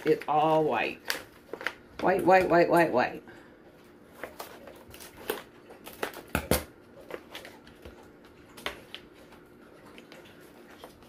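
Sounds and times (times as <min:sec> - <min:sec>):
wrapping rustling: 0:03.9 - 0:06.3.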